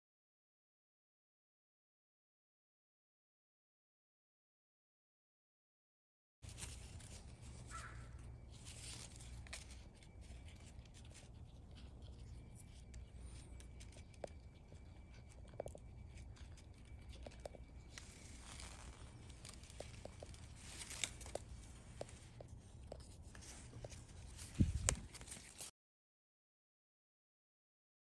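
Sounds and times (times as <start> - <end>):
leaves and twigs rustling: 6.4 - 25.7
low steady hum: 6.4 - 25.7.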